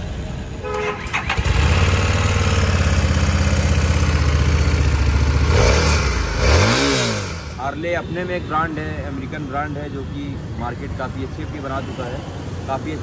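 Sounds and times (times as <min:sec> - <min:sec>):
motorcycle engine starting and idling: 0:00.6 - 0:07.6.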